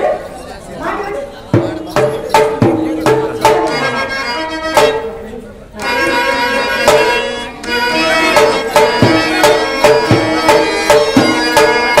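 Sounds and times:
steady drum beat: 1.4 - 5.2, 6.8 - 12.0
clarinet melody: 5.8 - 12.0.

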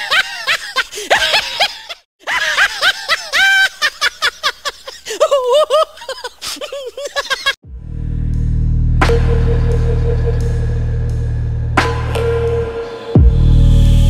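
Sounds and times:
comic laughter sound effect: 0.0 - 7.6.

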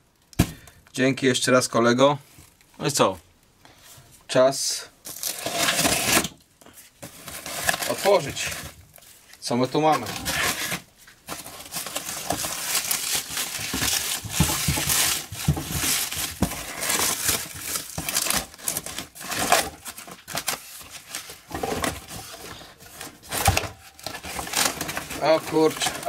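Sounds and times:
plastic bag crinkling and tearing: 5.0 - 6.3, 7.0 - 26.0.

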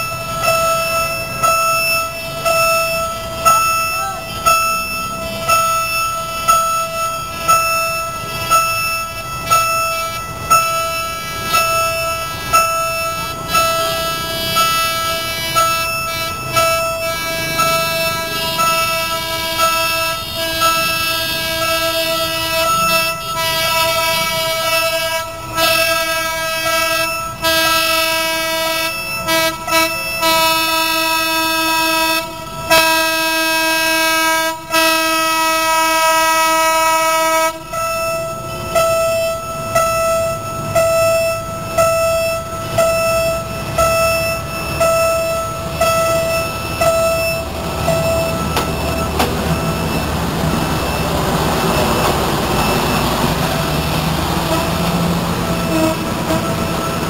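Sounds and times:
diesel train horn blasts: 0.0 - 57.0
train engine and wheels rumbling: 0.0 - 57.0.

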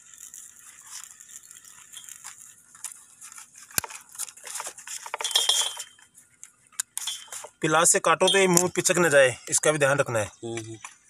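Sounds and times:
rustling: 0.0 - 7.7.

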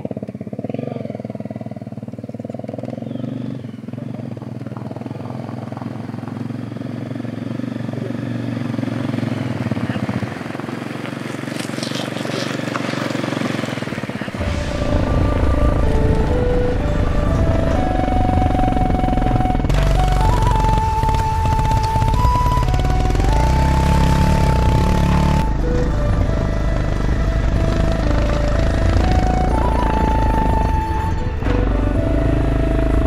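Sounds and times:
motorcycle engine idling: 0.0 - 33.0
motorcycle riding past: 0.0 - 33.0
background music: 14.3 - 33.0.

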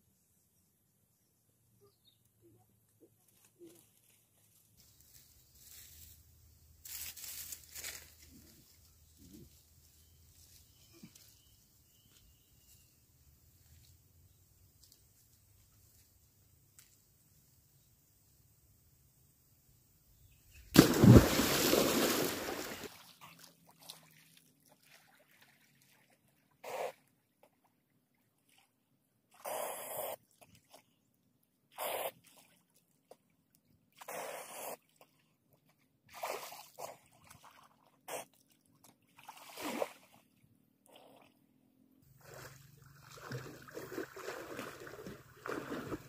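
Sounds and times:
person jumping into water: 20.7 - 24.2, 39.2 - 40.1, 42.2 - 46.0
short splashes of swimming: 20.7 - 27.1, 36.1 - 40.4, 42.1 - 46.0.

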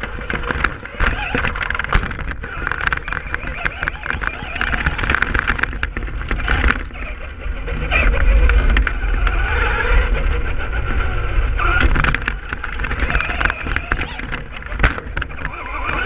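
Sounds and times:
gravel pinging off chassis: 0.0 - 16.0
low rumble: 5.8 - 15.8.

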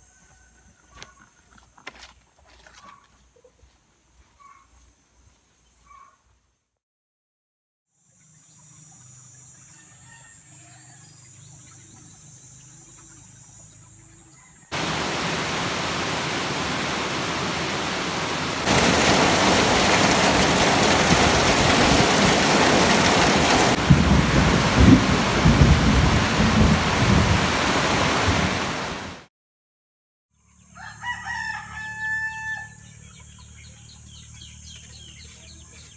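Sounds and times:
heavy rain pouring: 14.7 - 29.3
water streaming off roof: 14.7 - 29.3
thunder rumbling: 14.8 - 28.7.

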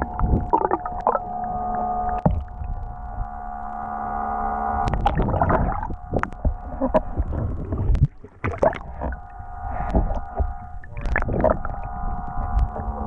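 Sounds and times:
low underwater rumble: 0.0 - 13.0
underwater drone: 0.0 - 13.0
water splashing: 4.9 - 13.0.

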